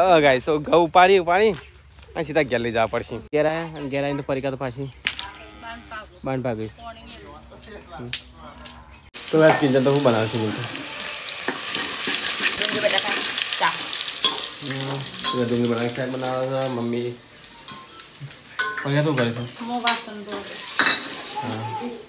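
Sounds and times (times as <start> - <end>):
food sizzling in hot oil: 9.2 - 22.0
ladle stirring in pot: 9.5 - 16.8.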